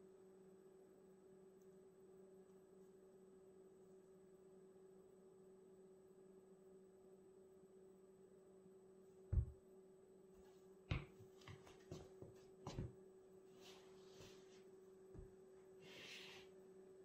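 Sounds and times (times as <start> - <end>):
faint steady hum: 0.0 - 17.0
foot thud on wooden floor: 9.3 - 9.6, 10.9 - 13.0
shoe taps and scuffs: 10.9 - 13.0.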